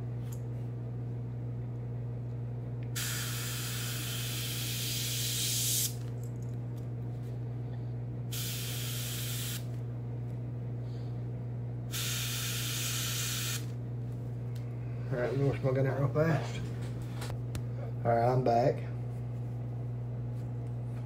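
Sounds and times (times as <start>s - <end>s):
air compressor humming: 2.9s - 17.9s
airbrush spraying hiss: 3.0s - 6.0s, 8.3s - 9.6s, 11.9s - 13.6s.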